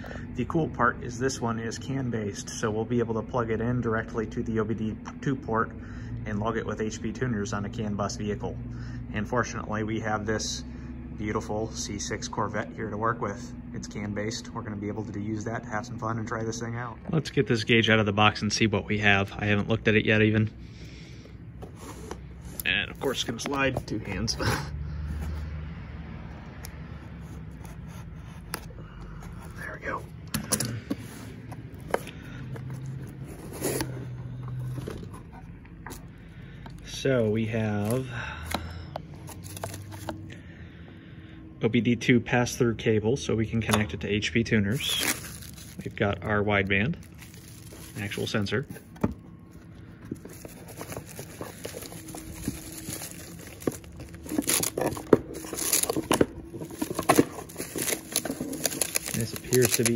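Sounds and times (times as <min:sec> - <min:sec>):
cardboard scraping and sliding: 0:21.6 - 0:25.7, 0:30.8 - 0:35.6, 0:50.0 - 0:59.9
bubble wrap and cables crinkling: 0:21.7 - 0:25.4, 0:39.2 - 0:40.3, 0:44.7 - 0:59.9.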